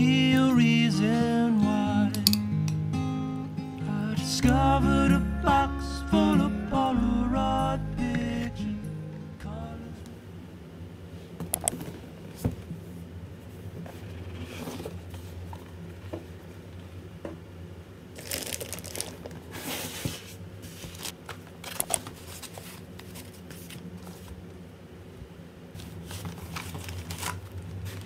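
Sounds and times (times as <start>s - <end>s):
low steady hum: 0.0s - 28.0s
plastic bag crinkling: 18.2s - 19.6s, 26.0s - 28.0s
foam packing being handled: 18.2s - 21.2s.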